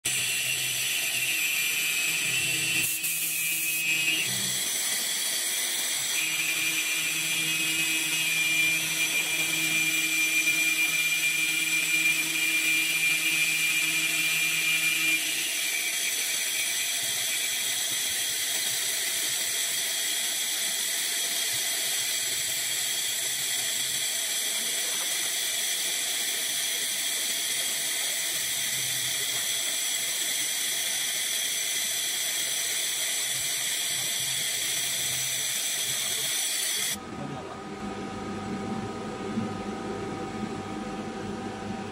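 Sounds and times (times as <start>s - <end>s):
machine spindle whine: 0.1s - 41.9s
hiss: 2.8s - 7.0s, 14.9s - 37.0s.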